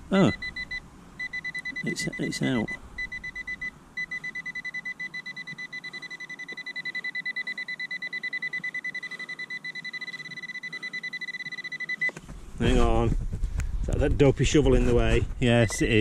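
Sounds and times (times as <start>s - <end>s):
metal detector beeping: 0.2s - 12.2s.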